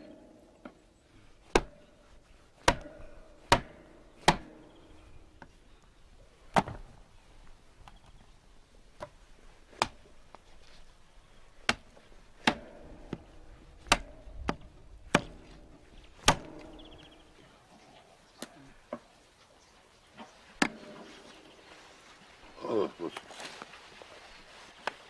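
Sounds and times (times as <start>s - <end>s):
cleaver chopping meat on block: 2.6s - 2.9s, 13.8s - 15.4s.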